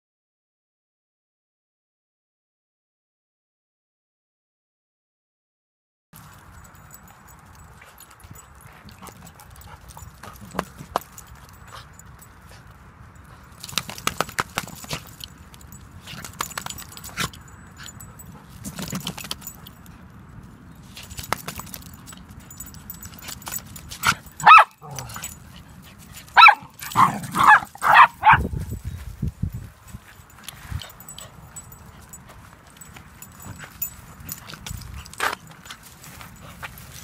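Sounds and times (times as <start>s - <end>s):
dog barking: 24.0s - 25.2s, 26.3s - 28.5s.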